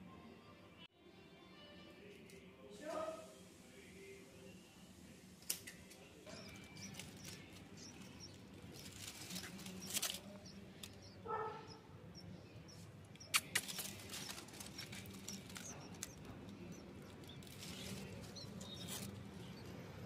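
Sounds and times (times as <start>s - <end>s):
dry leaves rustling and crackling: 6.3s - 11.0s, 13.4s - 19.4s
nestlings cheeping: 6.3s - 20.0s
sharp clicks: 13.1s - 16.6s.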